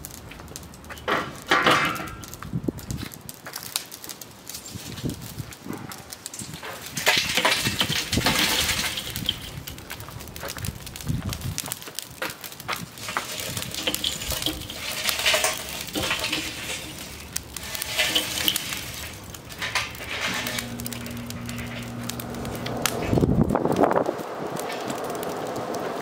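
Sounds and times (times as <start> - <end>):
charcoal clattering and crackling: 0.0 - 26.0
charcoal clinking against metal: 6.2 - 9.9, 13.0 - 23.2
low steady hum: 13.8 - 23.7.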